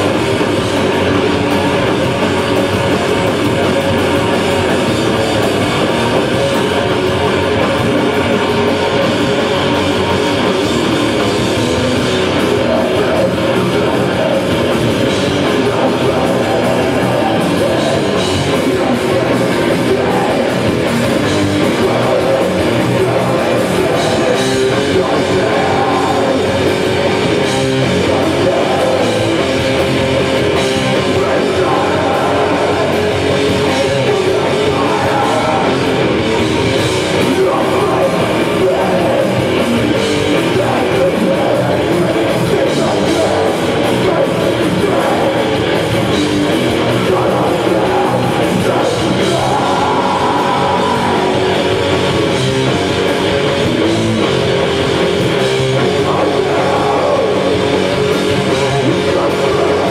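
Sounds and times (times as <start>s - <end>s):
distorted electric guitars: 0.0s - 59.9s
drum kit: 0.0s - 59.9s.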